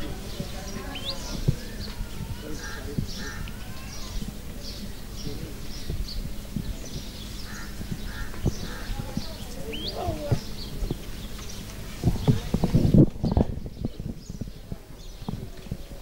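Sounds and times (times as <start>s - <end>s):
birds calling: 0.0s - 16.0s
goats shuffling and feeding: 8.7s - 13.2s.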